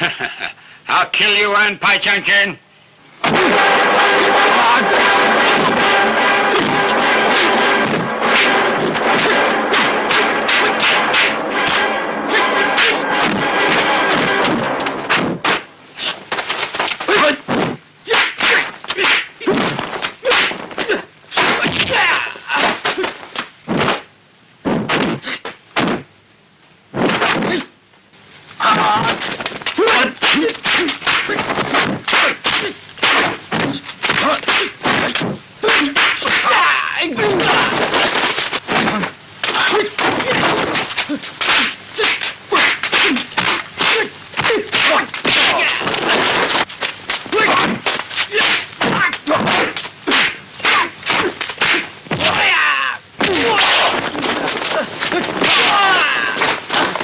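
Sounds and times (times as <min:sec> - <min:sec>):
fighters shouting and grunting: 0:03.2 - 0:14.8, 0:17.1 - 0:17.5, 0:18.1 - 0:23.2, 0:28.6 - 0:37.9, 0:38.8 - 0:46.3, 0:47.2 - 0:57.0
punch impact hits: 0:03.2 - 0:15.7.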